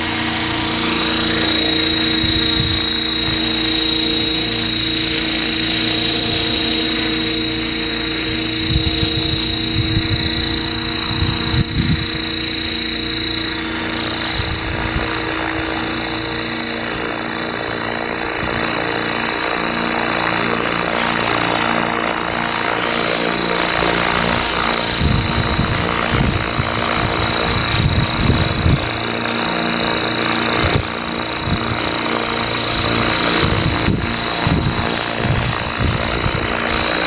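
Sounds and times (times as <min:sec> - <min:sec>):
wind buffeting microphone: 0:00.0 - 0:03.7, 0:07.9 - 0:19.0, 0:24.1 - 0:29.4, 0:30.3 - 0:37.0
helicopter rotor blades: 0:00.0 - 0:37.0
high-pitched motor whine: 0:00.0 - 0:37.0.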